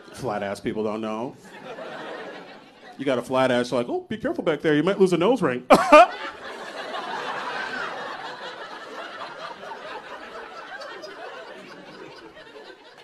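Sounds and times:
audience laughing: 0.0s - 3.1s, 5.7s - 13.0s.

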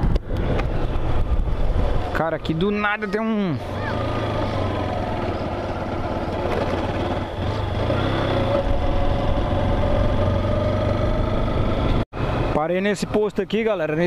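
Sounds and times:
motorcycle engine running: 3.4s - 12.5s.

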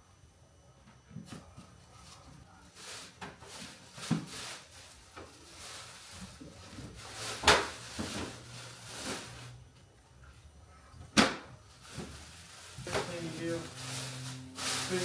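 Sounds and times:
box and packing rustling: 11.7s - 15.0s.

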